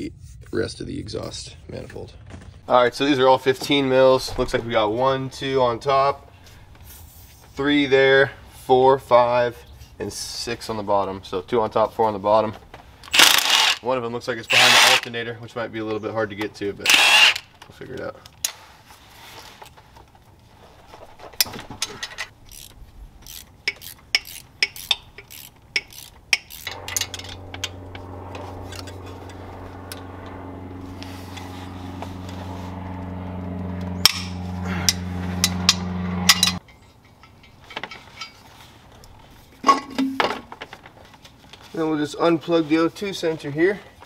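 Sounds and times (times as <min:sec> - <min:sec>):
steady low hum: 0:22.0 - 0:37.6
hand tools clinking on metal: 0:36.3 - 0:38.6.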